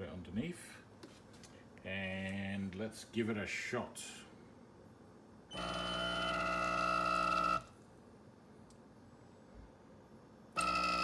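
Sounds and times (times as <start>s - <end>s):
espresso machine pump humming: 5.5s - 7.8s, 10.5s - 11.0s.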